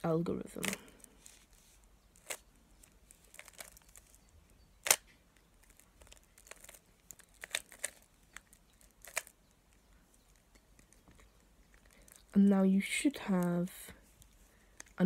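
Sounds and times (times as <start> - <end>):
puzzle cube layers clicking: 5.7 - 9.4.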